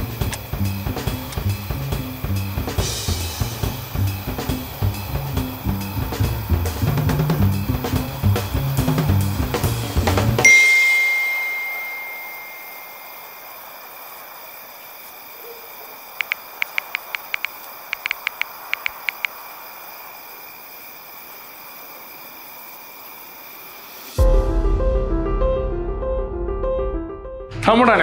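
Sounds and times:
faint hiss: 0:00.0 - 0:24.2
phone keyboard tap clicks: 0:16.2 - 0:19.3.

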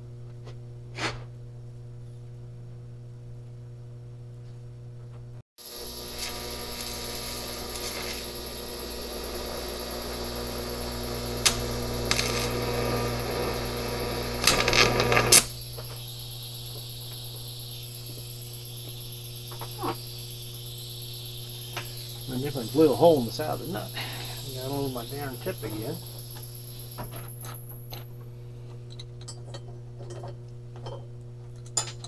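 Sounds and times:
welding arc crackles and pops: 0:05.6 - 0:28.2
welding arc buzzing: 0:05.6 - 0:28.4
welder hum: 0:05.6 - 0:28.8.

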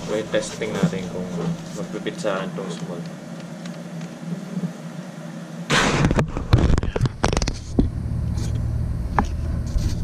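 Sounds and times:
low steady rumble: 0:06.5 - 0:10.0.

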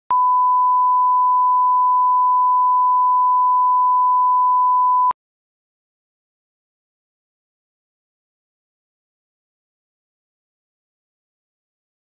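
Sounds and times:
steady sine test tone: 0:00.1 - 0:05.1.

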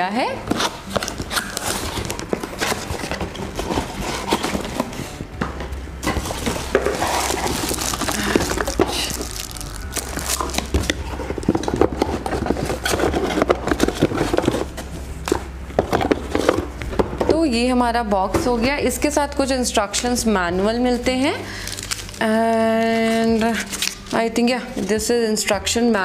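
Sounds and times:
cardboard rustling and scraping: 0:00.4 - 0:17.3, 0:21.7 - 0:24.2
plastic bag crinkling: 0:06.1 - 0:15.3, 0:21.5 - 0:24.2.

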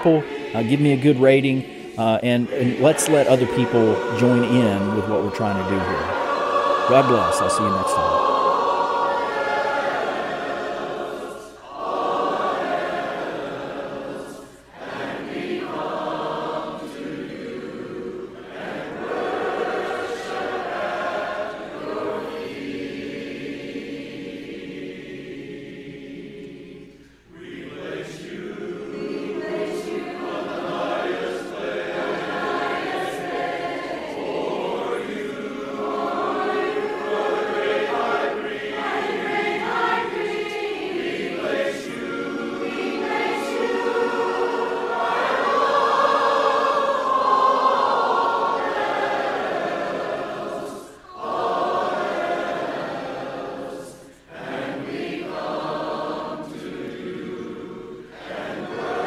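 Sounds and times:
choir singing: 0:00.0 - 0:59.0.

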